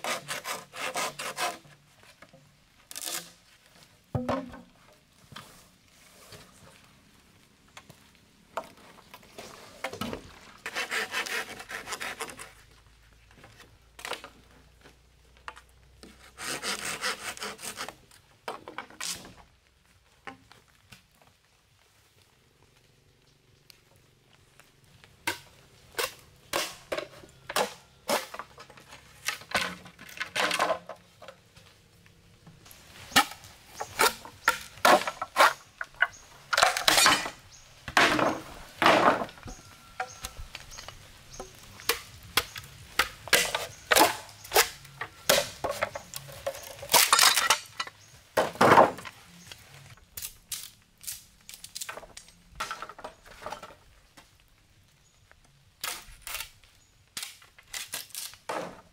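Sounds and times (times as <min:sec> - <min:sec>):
rasping stroke on bamboo: 0:00.0 - 0:02.2, 0:10.6 - 0:12.6, 0:16.0 - 0:18.0
knocks and chops on bamboo: 0:25.2 - 0:28.5, 0:33.1 - 0:37.3, 0:41.4 - 0:47.4, 0:57.2 - 0:58.9.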